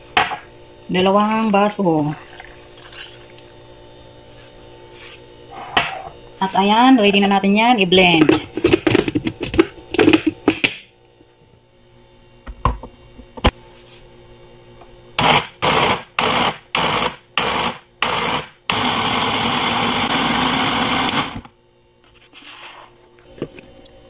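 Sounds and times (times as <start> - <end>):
blender running: 15.2 - 21.6.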